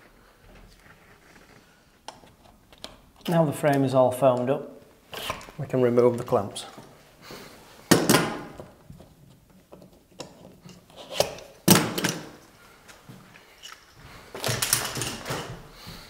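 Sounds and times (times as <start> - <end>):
bar clamps clicking and clattering: 14.4 - 15.6.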